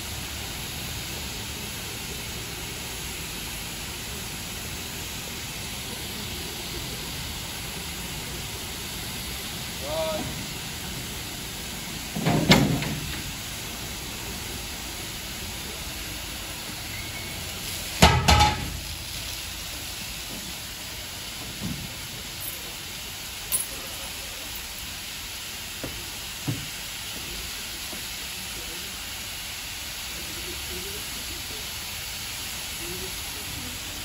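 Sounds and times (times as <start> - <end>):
steam hissing: 0.0 - 34.0
metal knocks and clangs: 18.0 - 18.7.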